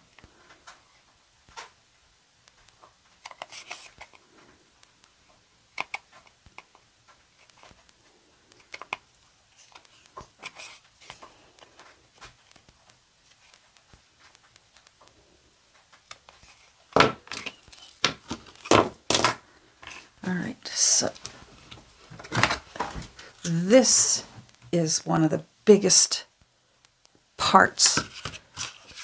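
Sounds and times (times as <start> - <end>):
knocks and clatter on wooden desk: 17.0 - 17.4.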